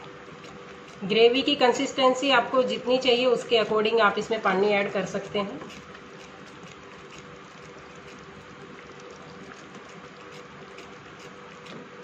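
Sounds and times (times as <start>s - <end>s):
gravy boiling and bubbling: 0.0s - 12.0s.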